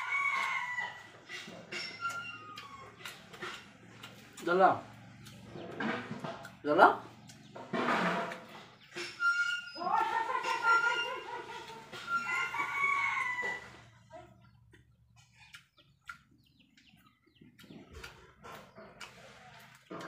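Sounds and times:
rooster crowing: 0.0 - 1.2, 12.0 - 13.9.

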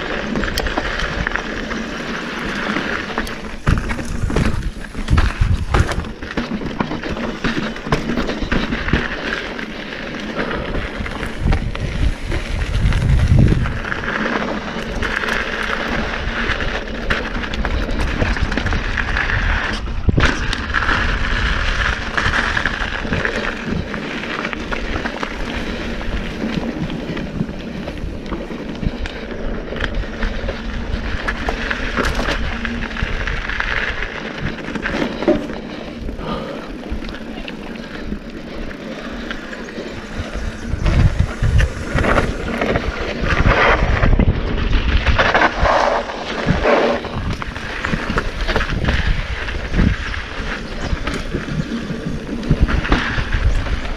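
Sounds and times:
bike rattling over bumps: 0.0 - 53.9
bike tyres crunching over dirt: 0.0 - 53.9
wind noise on microphone: 0.0 - 53.9.

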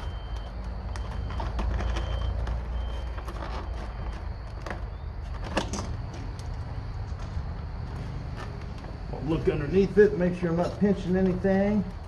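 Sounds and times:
foam and plastic rustling and clicking: 0.0 - 6.5.

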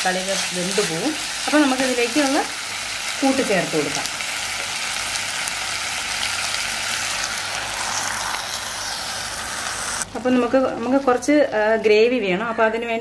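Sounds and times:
vegetables sizzling in hot oil: 0.0 - 11.8.

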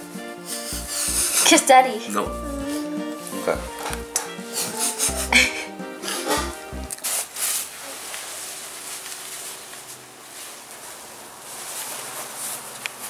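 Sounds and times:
background music: 0.0 - 7.0
dress fabric rustling: 6.3 - 13.0.

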